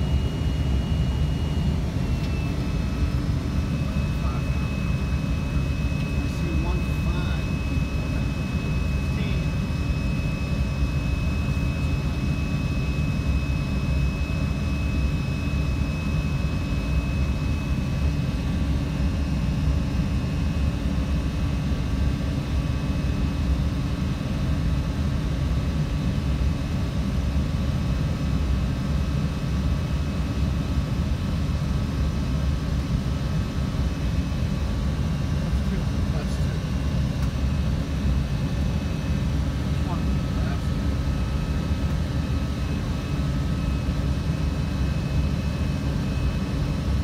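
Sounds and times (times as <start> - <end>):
jet engines roaring: 0.0 - 10.6
thin high whine: 0.0 - 17.6.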